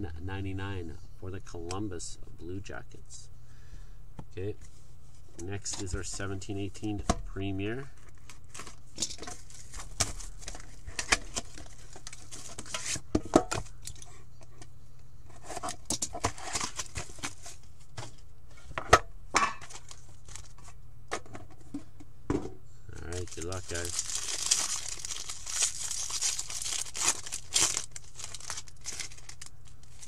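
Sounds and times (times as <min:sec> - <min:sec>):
cardboard and plastic rustling: 0:07.9 - 0:14.1, 0:15.3 - 0:22.0, 0:23.0 - 0:30.0.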